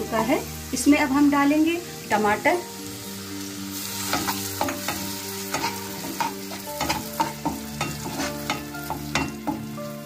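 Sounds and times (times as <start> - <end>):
food sizzling in butter: 0.0 - 10.0.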